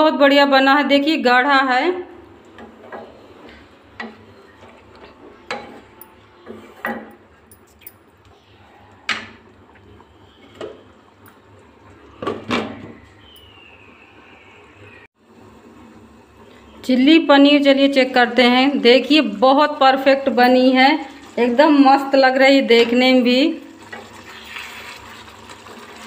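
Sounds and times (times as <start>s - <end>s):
gravy simmering with pops: 23.7s - 26.0s.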